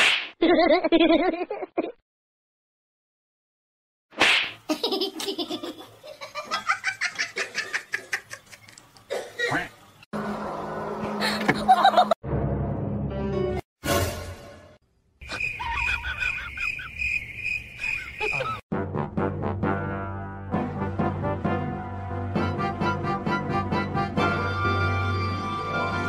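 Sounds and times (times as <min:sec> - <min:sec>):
hearty laughter: 0:11.2 - 0:12.2, 0:15.3 - 0:16.9.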